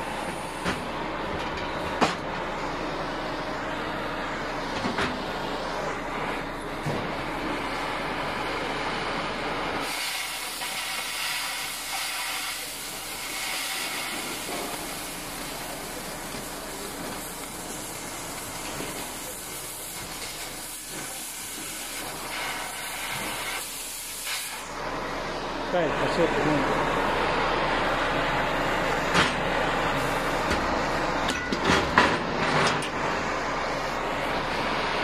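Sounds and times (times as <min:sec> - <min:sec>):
cutting torch flame rushing: 0:03.9 - 0:25.0
cutting oxygen jet hissing: 0:09.7 - 0:24.9.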